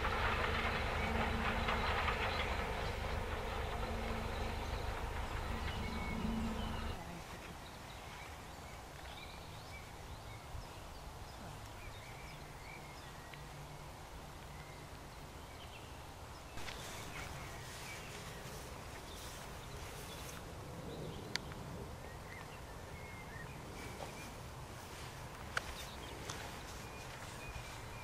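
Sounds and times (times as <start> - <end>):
distant steam train rumbling past: 0.0 - 8.4, 16.6 - 28.0
faint birdsong: 0.0 - 28.0.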